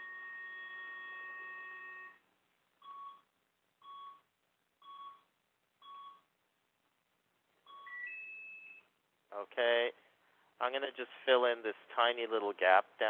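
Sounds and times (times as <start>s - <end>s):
short electronic beeps: 2.8s - 6.3s, 7.7s - 8.9s.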